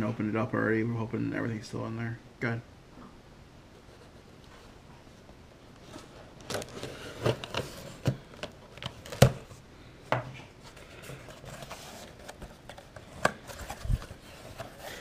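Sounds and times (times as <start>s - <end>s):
cardboard flaps rustling: 5.8s - 9.6s, 10.6s - 15.0s.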